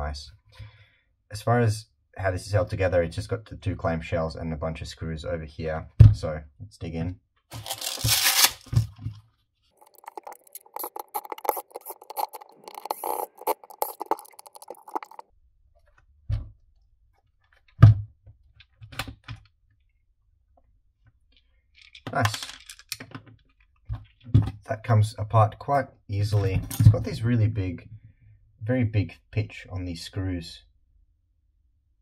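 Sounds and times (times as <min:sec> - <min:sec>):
fabric roll ripping open: 0:07.5 - 0:08.9.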